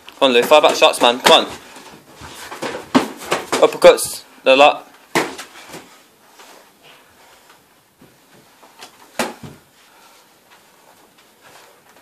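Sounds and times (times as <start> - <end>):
boxing gloves thudding: 2.5 - 3.9, 5.1 - 5.9, 8.8 - 9.7.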